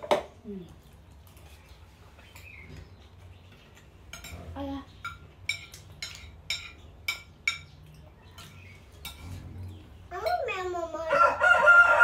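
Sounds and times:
spoons clinking on plates: 3.5s - 9.4s
rooster crowing: 11.1s - 12.0s.

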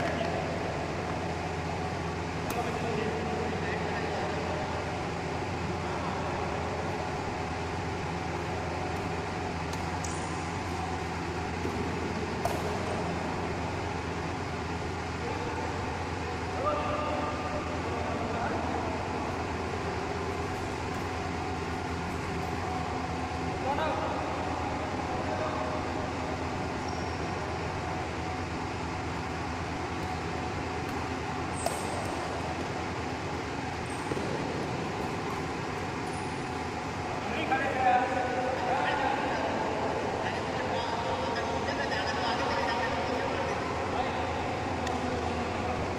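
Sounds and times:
rumbling hall noise: 0.0s - 45.9s
steady hum: 0.0s - 45.9s
rackets hitting shuttlecock: 2.4s - 2.9s, 8.4s - 13.2s, 20.1s - 22.8s, 29.8s - 36.7s
shoes squeaking on court: 29.9s - 36.7s.

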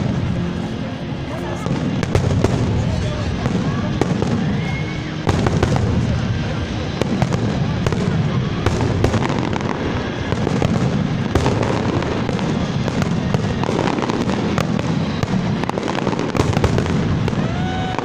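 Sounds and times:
fireworks bursting and crackling: 0.0s - 18.0s.

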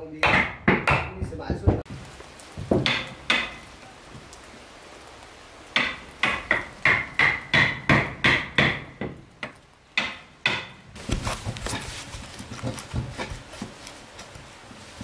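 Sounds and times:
hammer striking wood: 0.2s - 1.3s, 2.6s - 3.6s, 5.8s - 10.8s.

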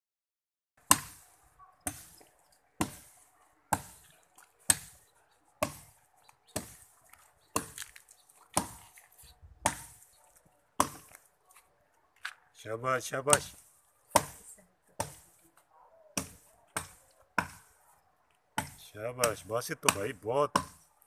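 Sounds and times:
axe chopping into wood: 0.8s - 1.2s, 1.8s - 2.2s, 2.8s - 3.1s, 3.7s - 5.0s, 5.6s - 6.9s, 7.5s - 8.0s, 8.6s - 9.0s, 9.6s - 10.0s, 10.8s - 11.1s, 13.3s - 14.4s, 15.0s - 15.3s, 16.2s - 17.7s, 18.6s - 20.8s.

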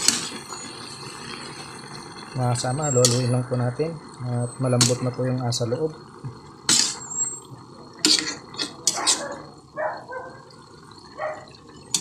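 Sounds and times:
spatula stirring in a pan: 0.0s - 1.8s, 6.7s - 9.5s.

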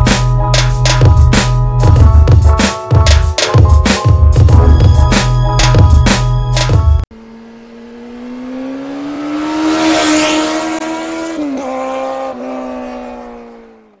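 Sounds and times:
vehicle engine pulling past: 7.2s - 14.0s.

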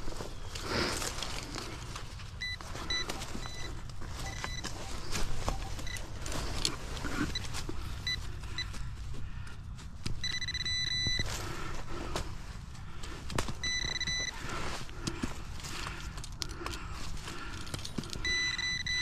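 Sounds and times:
pinpointer high beeps: 2.4s - 6.0s, 10.2s - 11.2s, 13.6s - 14.4s, 18.2s - 19.0s.

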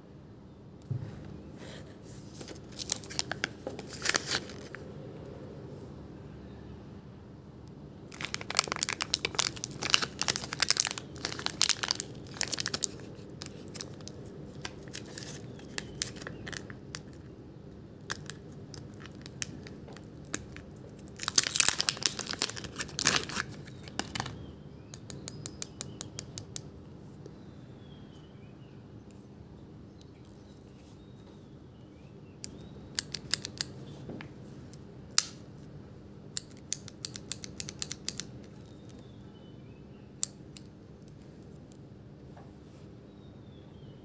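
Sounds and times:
plastic wrapping crinkling: 2.3s - 4.8s, 8.1s - 17.2s, 18.1s - 24.4s.

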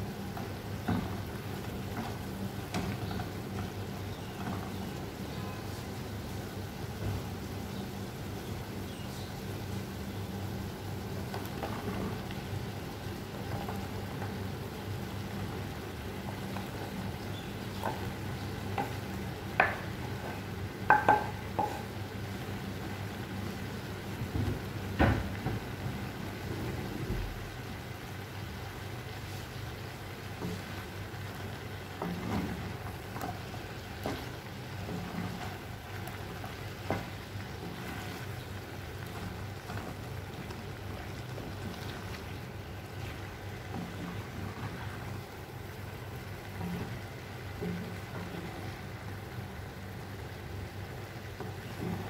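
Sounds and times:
vegetables sizzling in a pan: 0.0s - 52.0s
spatula knocking against pan: 20.8s - 21.9s.

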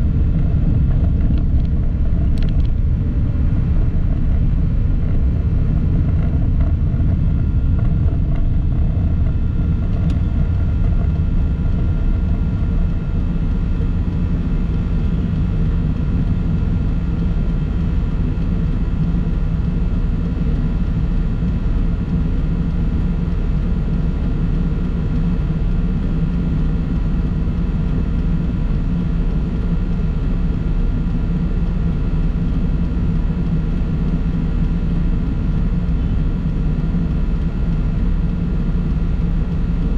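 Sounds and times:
vehicle engine and road noise: 0.0s - 14.7s.

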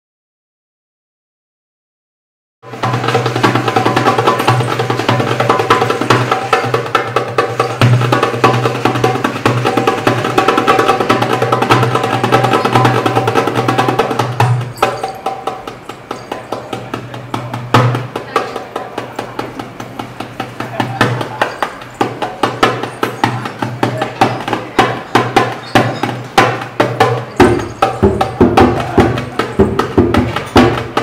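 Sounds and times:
drums played fast: 2.7s - 31.0s.

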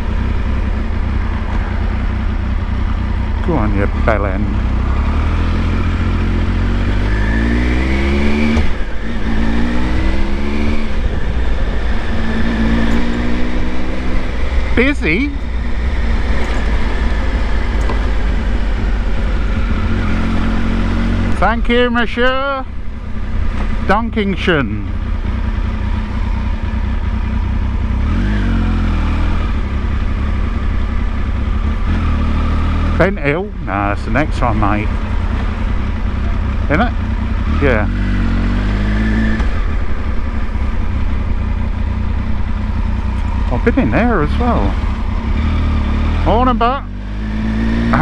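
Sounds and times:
steady low rumble: 0.0s - 28.0s, 39.0s - 47.1s
motorcycle engine accelerating: 0.0s - 48.0s.

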